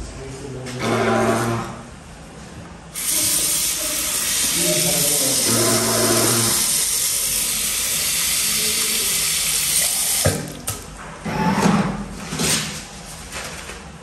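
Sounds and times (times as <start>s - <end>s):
tap water running: 3.0s - 11.0s.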